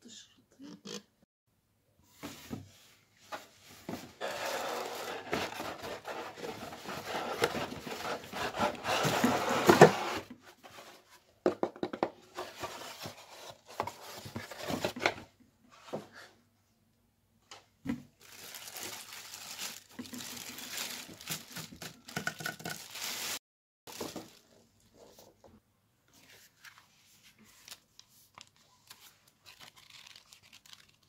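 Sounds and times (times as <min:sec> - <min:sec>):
paper pulp scraping cardboard box: 0:04.0 - 0:11.1.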